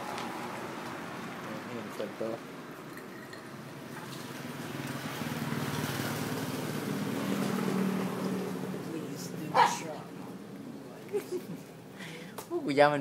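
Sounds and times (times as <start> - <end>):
motorcycle riding past: 3.5 - 10.5.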